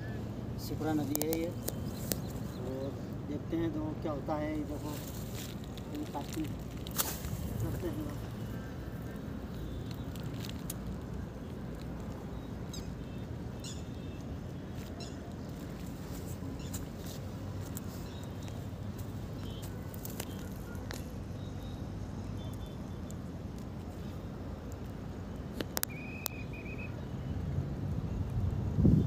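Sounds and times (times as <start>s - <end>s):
high bird chirps: 25.8s - 27.0s
wind rumble on microphone: 27.4s - 29.0s.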